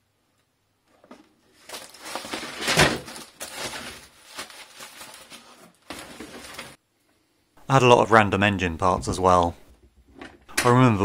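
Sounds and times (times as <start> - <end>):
plastic and cardboard packaging rustling: 0.9 - 6.8.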